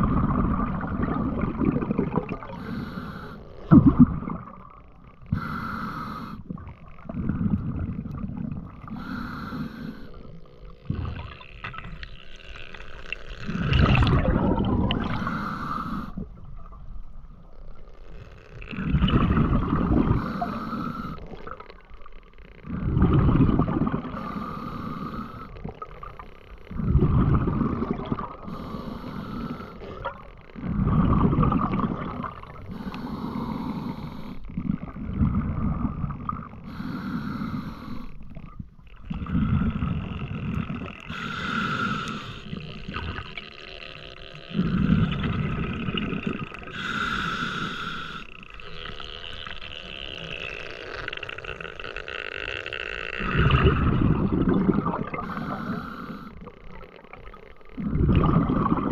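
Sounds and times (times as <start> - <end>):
diver inhaling hiss: 2.5 - 3.6, 5.3 - 6.5, 8.9 - 10.4, 15.1 - 16.2, 20.1 - 21.4, 24.1 - 25.6, 28.4 - 30.0, 32.6 - 34.5, 36.6 - 38.3, 41.1 - 43.0, 46.7 - 49.4, 55.2 - 56.5
exhale bubbling rush: 13.4 - 16.3, 53.2 - 56.5, 57.8 - 58.9.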